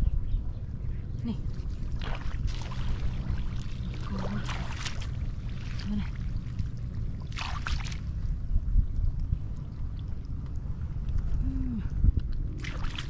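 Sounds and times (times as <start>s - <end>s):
wind rumbling on microphone: 0.0s - 13.0s
boots splashing in shallow water: 1.5s - 8.2s, 12.6s - 13.0s.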